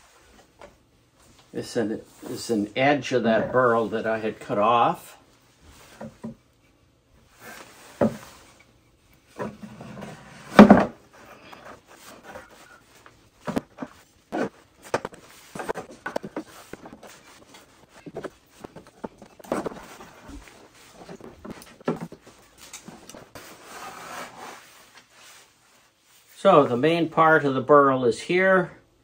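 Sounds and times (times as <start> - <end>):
wood pieces knocking in plastic bucket: 10.5 - 11.0.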